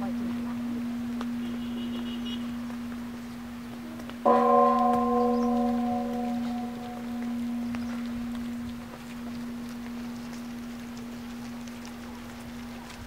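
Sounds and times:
large bell ringing: 0:00.0 - 0:12.8
steady low drone: 0:02.4 - 0:13.0.

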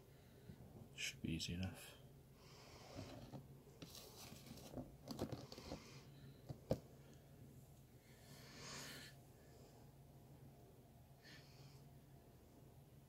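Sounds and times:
paper rustling: 0:03.2 - 0:05.8.

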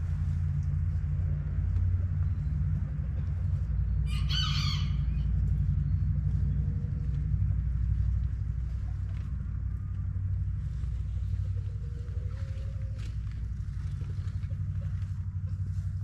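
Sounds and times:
steady low rumble: 0:00.0 - 0:16.0
rooster crowing: 0:04.0 - 0:05.2.

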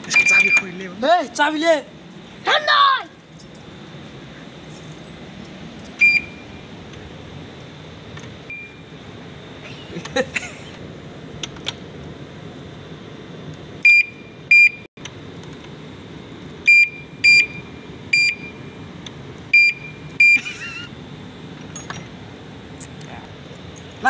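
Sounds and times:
padlock alarm beeps: 0:00.1 - 0:00.8, 0:06.0 - 0:06.7, 0:08.5 - 0:08.9, 0:13.8 - 0:14.9, 0:16.7 - 0:18.8, 0:19.5 - 0:20.4.

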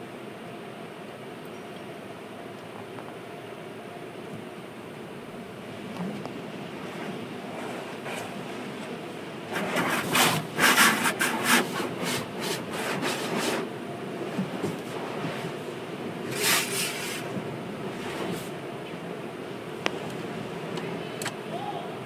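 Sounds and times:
low machinery rumble: 0:00.0 - 0:22.0
hissing rasping wash noise: 0:05.1 - 0:22.0.

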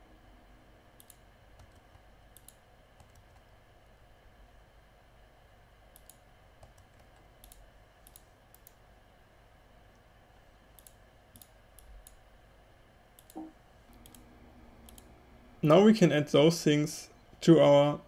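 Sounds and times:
low steady hum: 0:00.0 - 0:18.0
computer mouse clicks: 0:01.0 - 0:03.5, 0:05.9 - 0:08.8, 0:10.7 - 0:12.2, 0:13.2 - 0:15.1.

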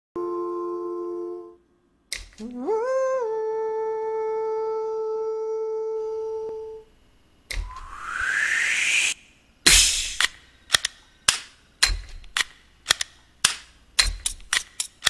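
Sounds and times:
click: 0:02.1 - 0:02.6
synthesized humming tone: 0:07.6 - 0:10.2
rising whoosh: 0:07.6 - 0:10.3.

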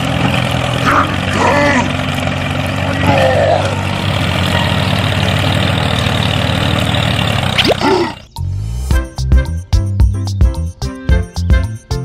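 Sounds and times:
engine running with fast pulse: 0:00.0 - 0:08.9.

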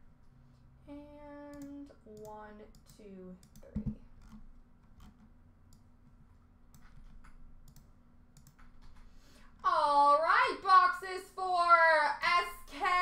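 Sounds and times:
low steady hum: 0:00.0 - 0:13.0
computer clicks: 0:01.4 - 0:04.4, 0:06.7 - 0:09.2.

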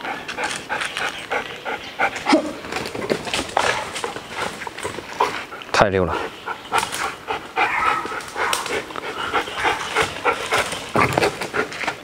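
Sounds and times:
dog whining: 0:01.7 - 0:02.7, 0:07.0 - 0:11.2.

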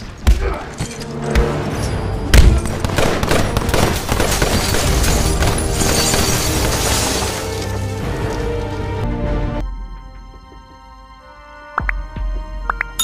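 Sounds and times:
dramatic score music: 0:00.0 - 0:13.0
glass shattering: 0:03.6 - 0:08.0.

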